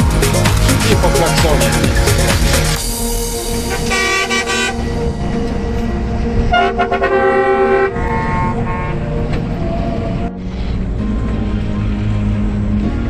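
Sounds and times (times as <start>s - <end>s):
low engine rumble: 0.0s - 13.0s
vehicle horn blasts: 3.7s - 4.9s, 6.5s - 9.2s.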